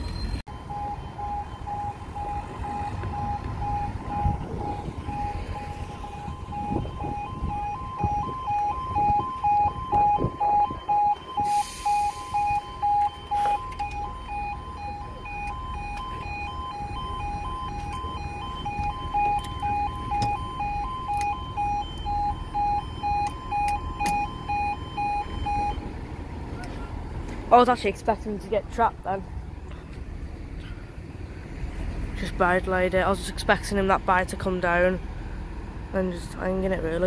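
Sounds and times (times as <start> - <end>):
level crossing two-tone alarm: 0.1 - 25.8.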